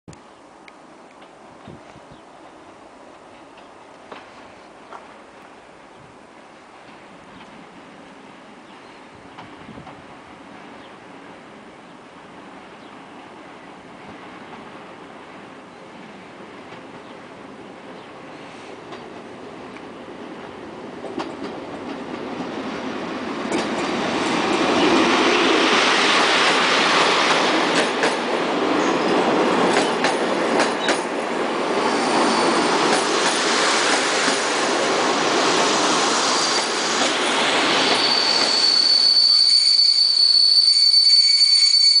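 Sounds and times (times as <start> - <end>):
train coaches rolling past: 0.5 - 42.0
wheels clicking over rail joints: 21.0 - 22.6, 23.4 - 24.9
wheels and brakes squealing: 31.8 - 32.9, 36.2 - 37.0, 37.7 - 42.0.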